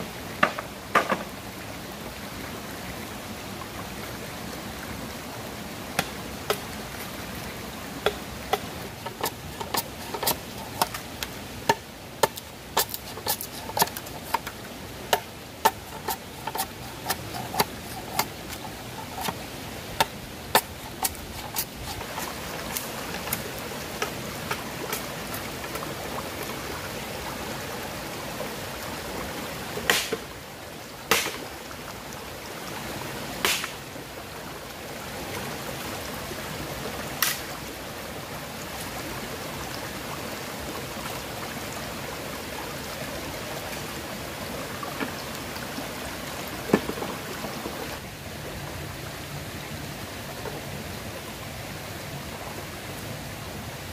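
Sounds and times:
shallow stream rushing: 0.0s - 53.9s
machete chopping bamboo: 15.1s - 18.6s, 29.9s - 30.2s, 31.1s - 31.4s, 33.4s - 33.8s.

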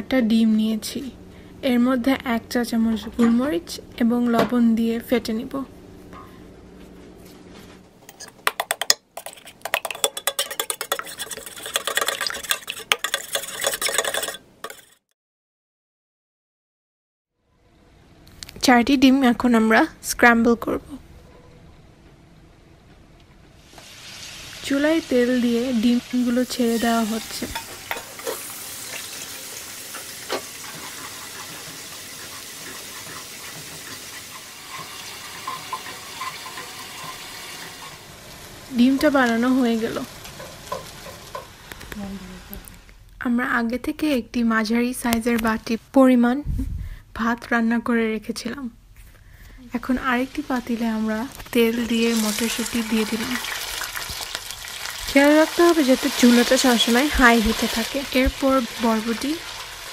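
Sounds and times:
spatula stirring and scraping: 8.1s - 15.1s, 29.9s - 38.0s
whisk clicking against bowl: 8.2s - 15.0s
eggs sizzling in hot oil: 8.5s - 15.0s, 23.6s - 42.0s, 49.7s - 59.9s.

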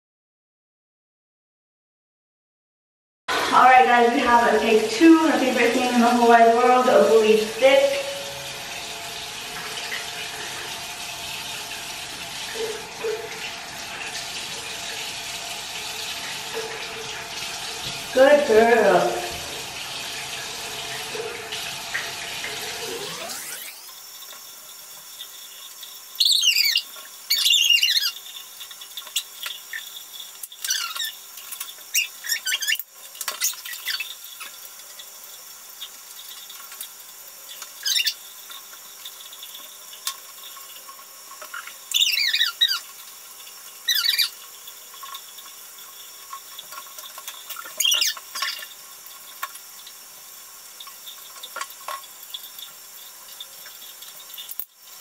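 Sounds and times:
tap running into sink: 8.7s - 22.9s.

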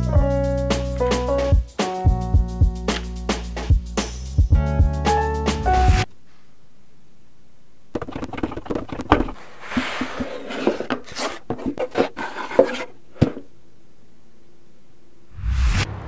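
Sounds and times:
objects clicking on wooden furniture: 8.0s - 13.4s.

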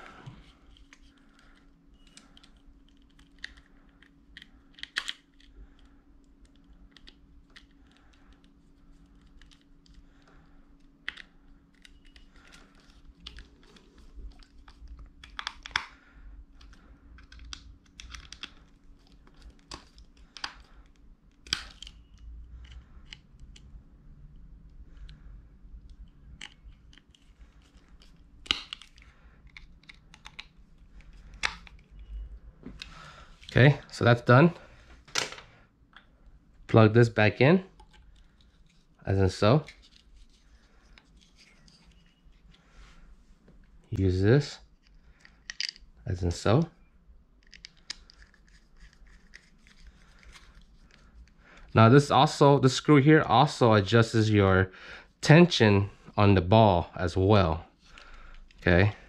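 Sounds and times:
faint steady hum: 0.0s - 59.0s
plastic parts clicking and tapping: 9.1s - 23.7s, 25.8s - 32.0s, 44.8s - 45.8s.

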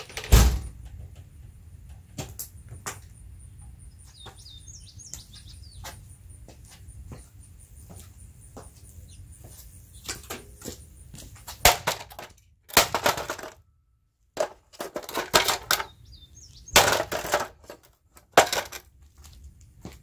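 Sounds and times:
hard objects clattering and knocking: 11.6s - 13.6s, 14.4s - 16.0s, 16.7s - 18.9s.

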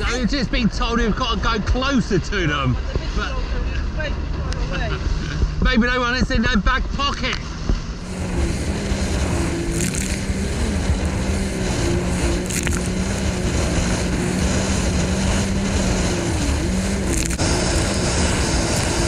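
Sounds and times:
jet ski engine running: 1.8s - 19.0s
water rushing and spray: 7.8s - 19.0s.

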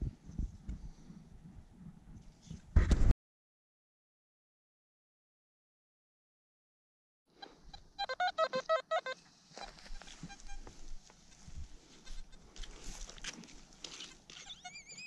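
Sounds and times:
metal detector beeps: 14.4s - 15.0s.

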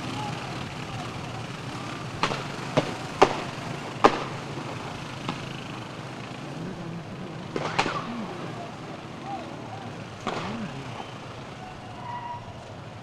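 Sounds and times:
motorcycle engines running: 0.0s - 13.0s
sharp shot-like bangs: 2.2s - 5.7s, 7.5s - 8.6s, 10.2s - 11.2s.

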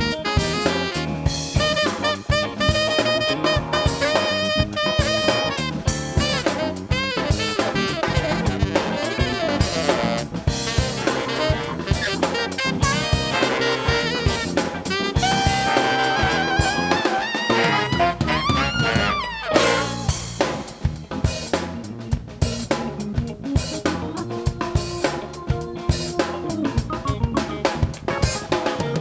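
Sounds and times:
saxophone horn long note: 0.0s - 20.3s
drum kit: 0.0s - 29.0s
live funk band playing: 0.0s - 29.0s.

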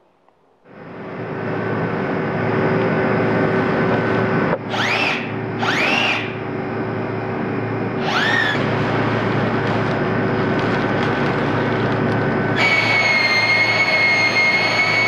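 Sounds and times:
steady machine hum: 0.0s - 15.0s
motor whining up and down: 4.6s - 6.5s, 7.8s - 15.0s.

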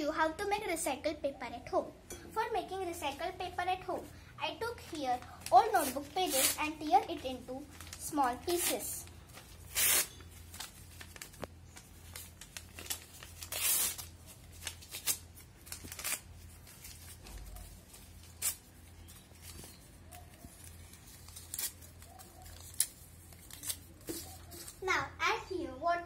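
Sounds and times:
paper tearing: 4.9s - 11.4s, 12.0s - 18.9s, 20.2s - 24.8s.

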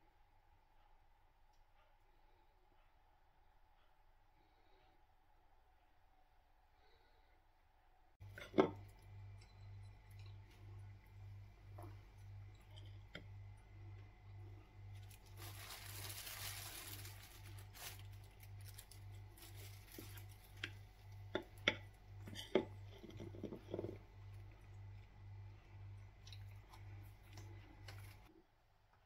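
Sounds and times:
soft rustle: 15.0s - 20.5s.

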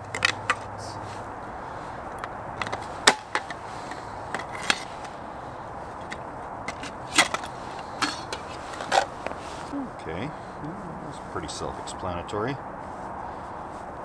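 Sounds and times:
camp cooking gear clinking: 2.2s - 5.2s, 6.0s - 9.4s.

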